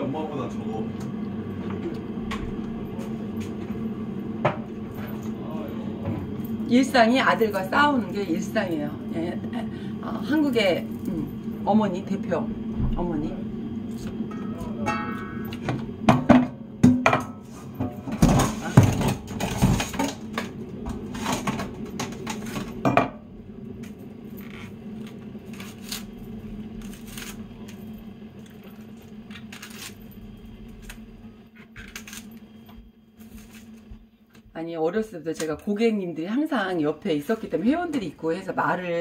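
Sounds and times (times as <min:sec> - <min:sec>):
low hum: 0:00.0 - 0:34.5
pot and utensils clinking: 0:14.3 - 0:20.4.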